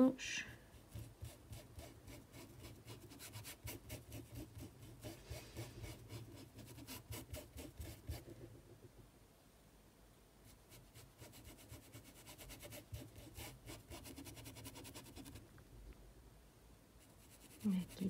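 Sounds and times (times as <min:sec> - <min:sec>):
paintbrush scrubbing fabric: 0:00.7 - 0:08.4, 0:10.5 - 0:15.4, 0:17.0 - 0:18.0.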